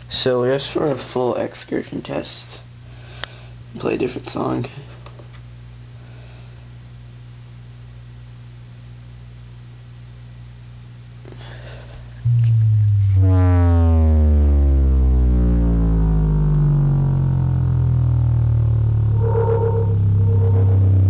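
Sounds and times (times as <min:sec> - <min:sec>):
faint low hum: 0:00.0 - 0:21.0
subwoofer deep bass tones: 0:12.2 - 0:21.0.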